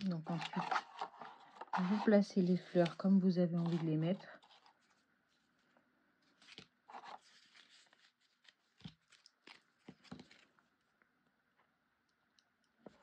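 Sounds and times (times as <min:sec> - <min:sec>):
paper crackles: 0:00.0 - 0:10.6
paper rustling and tapping: 0:08.7 - 0:10.5.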